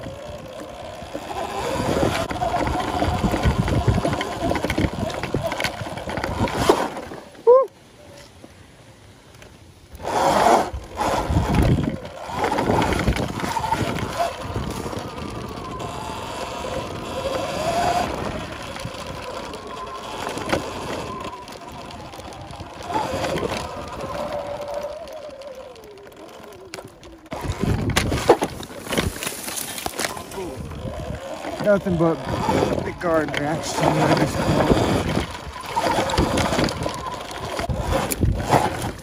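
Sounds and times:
electric motor whine: 0.0 - 7.4, 9.9 - 39.0
riding noise: 0.0 - 39.0
low rumbles: 10.0 - 39.0.

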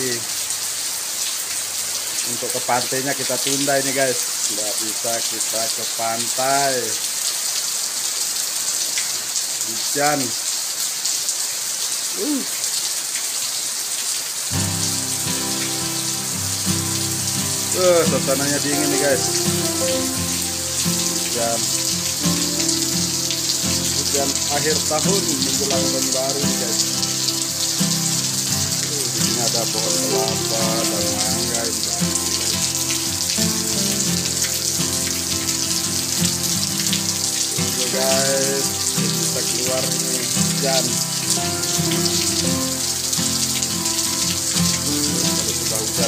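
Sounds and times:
heavy rain pouring: 0.0 - 46.0
background music sustained notes: 14.5 - 46.0.

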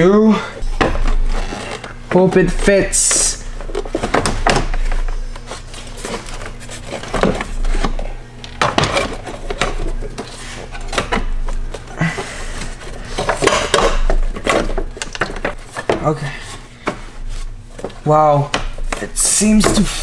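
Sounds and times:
plastic parts clattering and scraping: 0.8 - 16.6.

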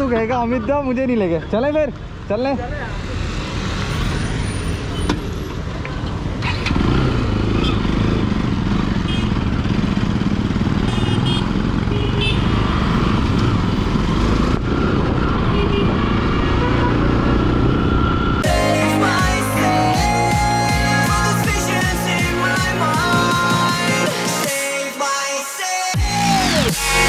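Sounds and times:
motorcycle engine riding: 6.2 - 18.6.

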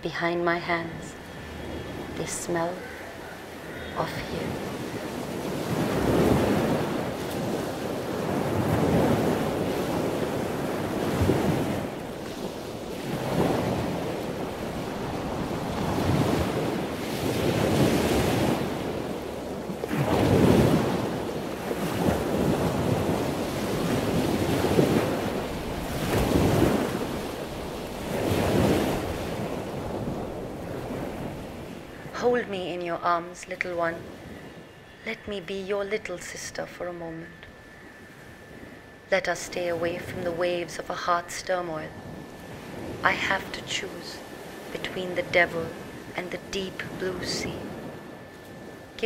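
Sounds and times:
waves washing against rocky shore: 4.1 - 32.5
wind noise on microphone: 4.5 - 32.2.

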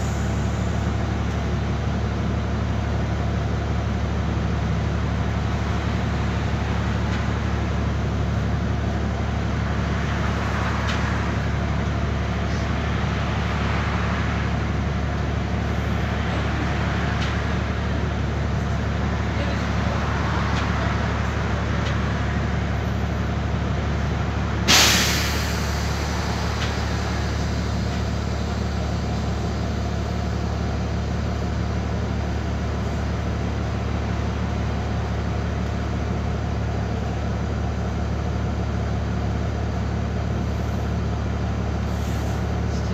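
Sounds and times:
bus diesel engine idling: 0.0 - 42.9
air brake hiss: 24.7 - 27.6, 41.9 - 42.4.

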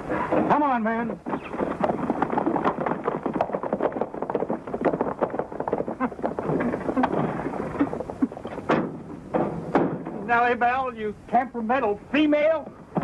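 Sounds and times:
horses' hooves clattering: 0.0 - 10.8.

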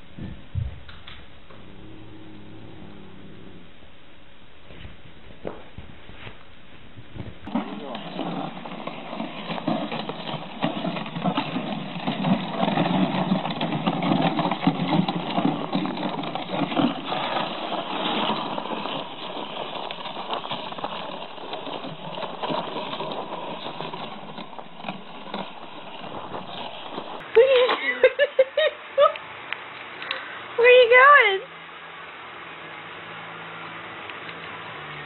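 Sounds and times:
sled runners scraping on snow: 7.3 - 27.2
boots crunching in snow: 13.9 - 27.2.

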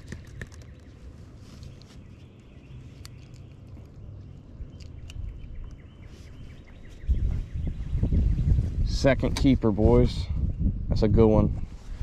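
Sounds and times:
faint bird chirping: 0.0 - 9.6.

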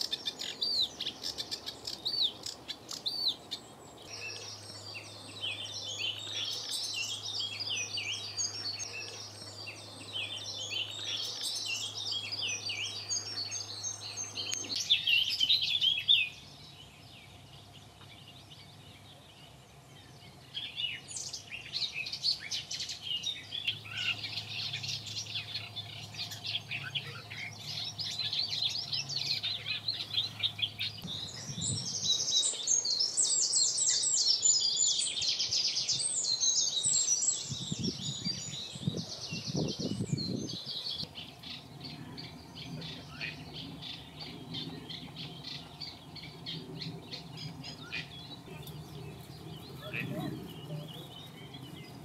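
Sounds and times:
songbirds singing and chirping: 0.0 - 52.0
low rumble: 41.0 - 52.0.

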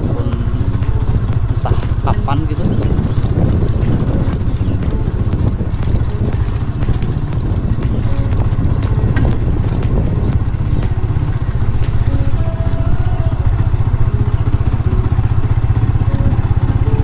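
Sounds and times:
clicks and rattles: 0.0 - 17.0
motorcycle engine running: 0.0 - 17.0.

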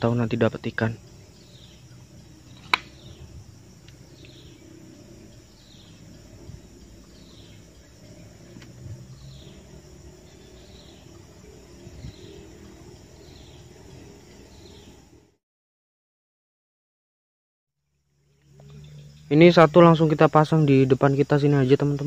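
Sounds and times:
sharp click: 2.6 - 3.0.

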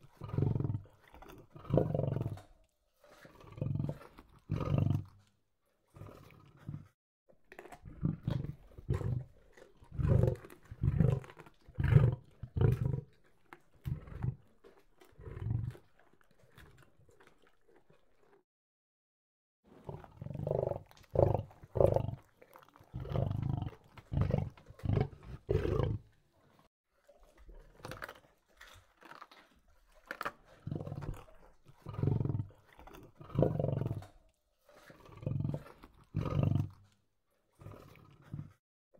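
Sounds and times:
lion growling: 0.0 - 5.2, 7.8 - 13.2, 13.8 - 17.2, 19.8 - 26.1, 30.5 - 36.8, 37.6 - 38.6.

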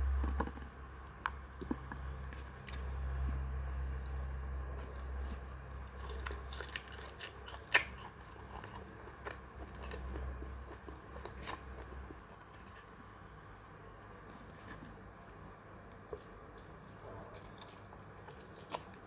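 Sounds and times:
chewing with wet mouth clicks: 4.8 - 12.3.

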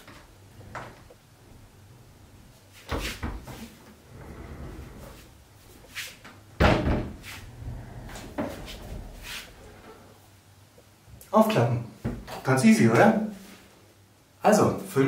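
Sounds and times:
loud thud: 6.6 - 7.3.

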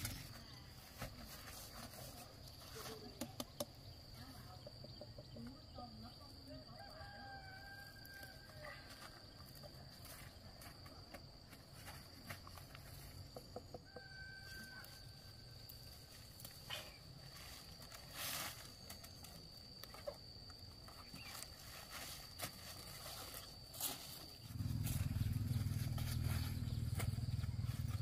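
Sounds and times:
high insect drone: 0.0 - 28.0
distant rooster crowing: 6.6 - 8.8, 13.4 - 15.4
rustling of vines and plastic film: 16.0 - 20.2, 20.8 - 25.0.

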